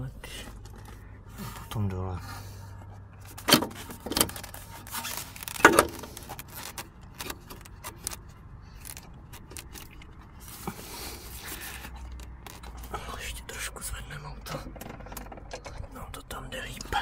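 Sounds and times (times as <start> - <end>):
metal clinks and knocks: 14.4 - 16.1.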